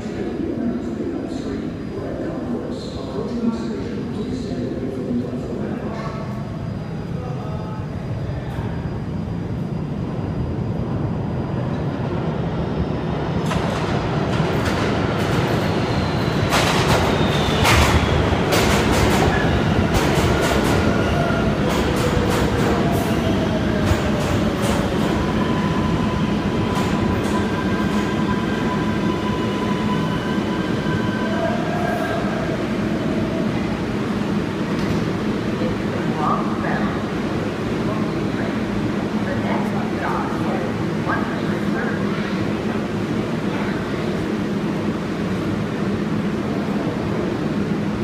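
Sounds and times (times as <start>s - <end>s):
subway train rumble: 0.0s - 48.0s.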